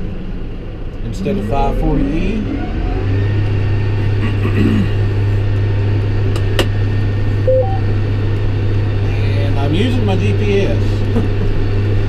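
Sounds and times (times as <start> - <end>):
tractor diesel engine drone: 0.0 - 12.0.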